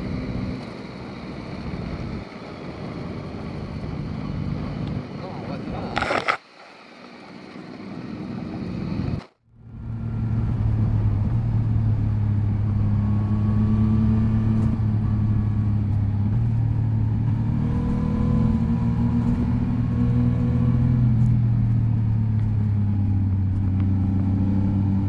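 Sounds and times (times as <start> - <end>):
motorcycle engine: 7.0 - 25.0.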